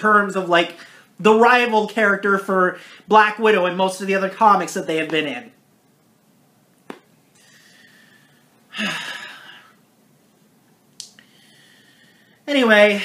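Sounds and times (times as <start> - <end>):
man sighing: 8.7 - 9.8
small click: 10.9 - 11.2.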